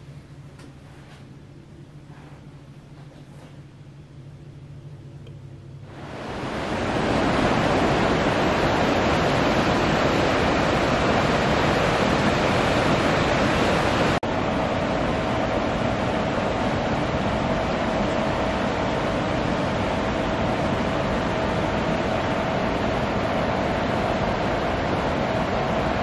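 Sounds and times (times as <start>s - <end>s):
faint steady hum: 0.0s - 26.0s
river rushing: 6.0s - 14.2s.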